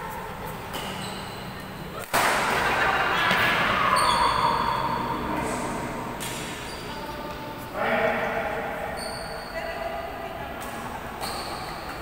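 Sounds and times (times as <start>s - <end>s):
racket hitting shuttlecock: 2.0s - 2.7s.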